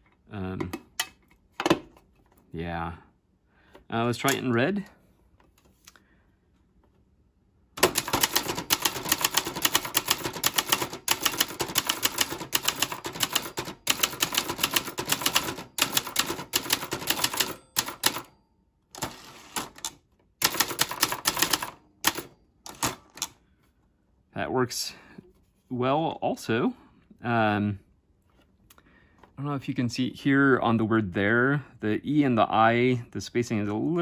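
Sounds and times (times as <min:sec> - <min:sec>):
typewriter keystrokes: 0:07.8 - 0:18.3, 0:19.0 - 0:23.3.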